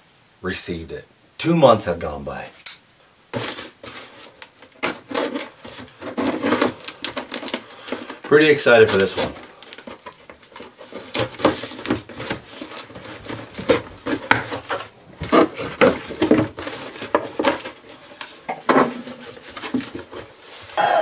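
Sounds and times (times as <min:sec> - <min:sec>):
cardboard scuffs and rustles: 0:03.3 - 0:20.8
blade scraping through packing tape: 0:03.4 - 0:08.2.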